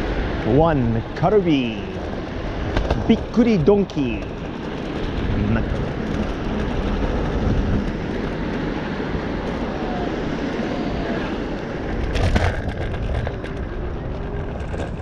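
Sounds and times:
scooter road noise: 0.0s - 15.0s
wind buffeting microphone: 0.0s - 15.0s
clatter and thump: 2.6s - 8.6s, 11.9s - 15.0s.

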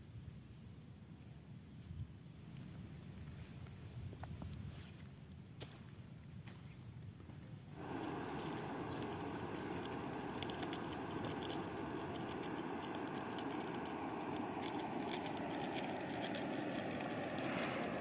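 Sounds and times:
gas stove burner roaring: 7.8s - 18.0s
light ticking: 7.8s - 18.0s.

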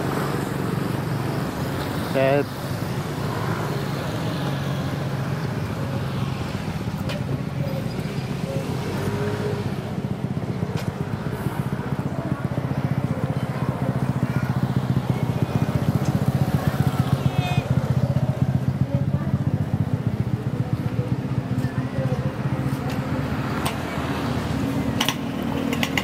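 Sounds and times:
motorcycle engines running: 0.0s - 26.0s
motorcycle passing close: 0.0s - 26.0s.

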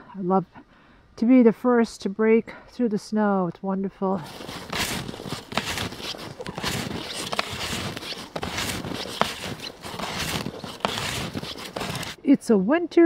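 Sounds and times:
snowshoes crunching through snow: 4.2s - 12.2s.

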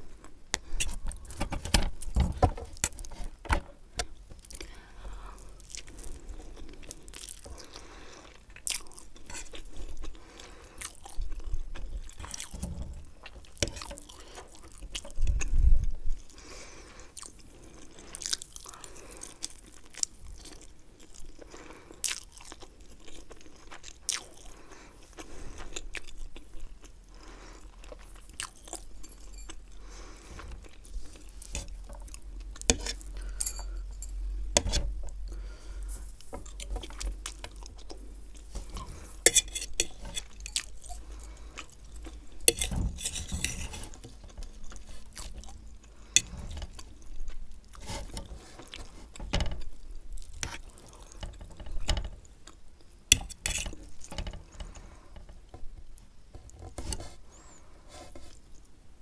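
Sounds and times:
chewing: 5.4s - 15.5s, 16.2s - 34.1s, 35.3s - 51.6s
metal fork scraping a plate: 38.7s - 40.6s, 42.5s - 44.0s, 53.1s - 53.8s.

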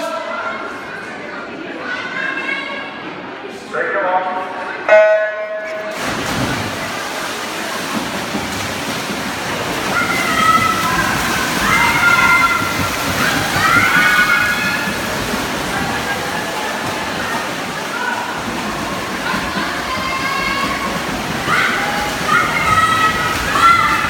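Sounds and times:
crowd noise: 0.0s - 24.0s
swimmers splashing: 4.9s - 24.0s
spectators shouting and cheering: 9.4s - 24.0s.

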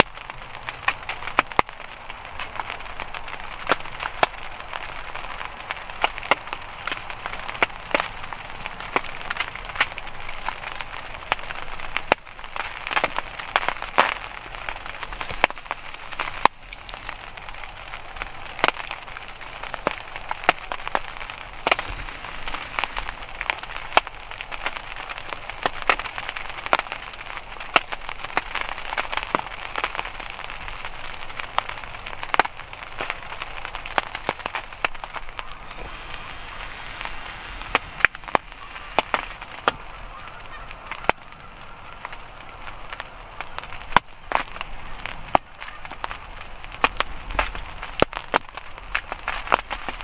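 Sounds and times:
rain pattering: 0.0s - 50.0s.

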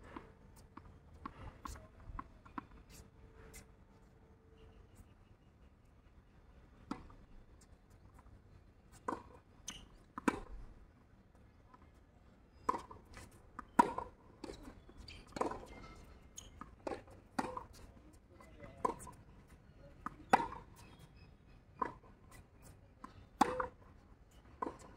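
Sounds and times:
tennis ball bouncing on hard court: 9.1s - 10.5s, 13.6s - 17.8s, 20.3s - 20.6s, 23.0s - 23.8s
tennis ball hit by rackets: 23.4s - 23.7s.

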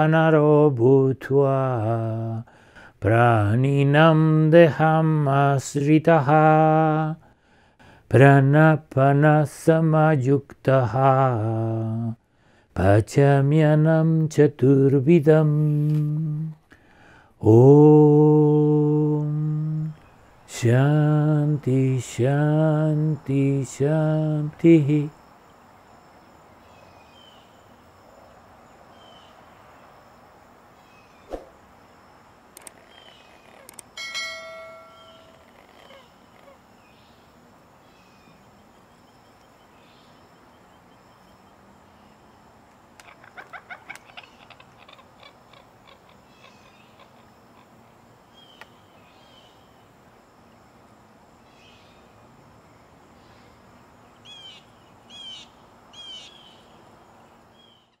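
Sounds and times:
steady background hiss: 0.0s - 58.0s
rattling bird notes: 32.6s - 36.5s
birds calling: 32.6s - 42.3s, 42.9s - 49.9s, 53.1s - 58.0s.

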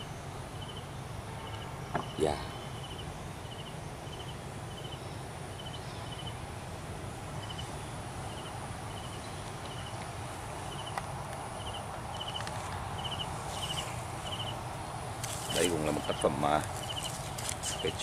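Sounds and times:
faint high pulsed chirp: 0.0s - 6.4s
outdoor background noise: 0.0s - 18.0s.

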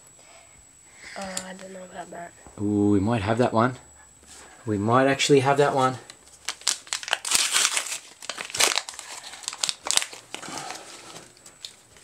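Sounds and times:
plastic wrapper crinkling: 5.8s - 12.0s.

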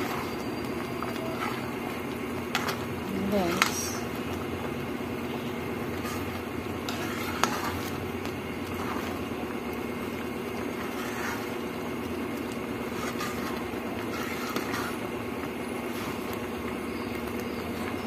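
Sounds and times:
spatula stirring and scraping: 0.0s - 18.0s
thick mixture bubbling in a pan: 0.0s - 18.0s.

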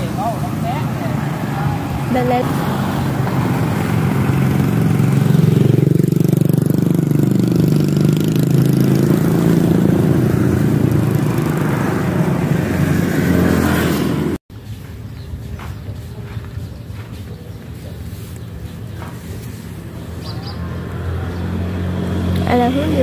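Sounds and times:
engine running: 0.0s - 14.4s.

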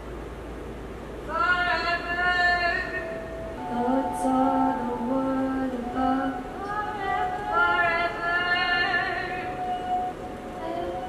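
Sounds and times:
layered voices singing long notes: 2.8s - 11.0s.

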